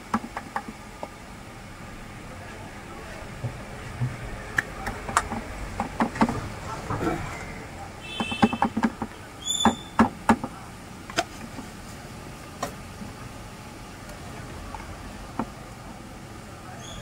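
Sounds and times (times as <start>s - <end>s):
sharp knocks and clicks: 0.0s - 1.1s, 3.4s - 7.2s, 8.0s - 11.6s.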